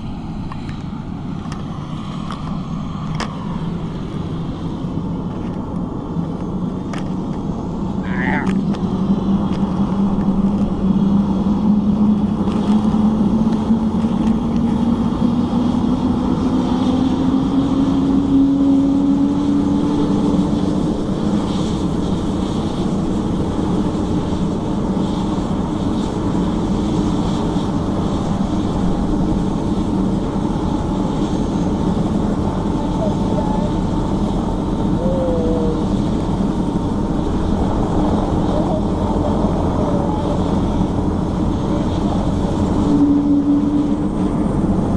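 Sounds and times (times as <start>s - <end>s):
helicopter engine and rotor: 0.0s - 44.9s.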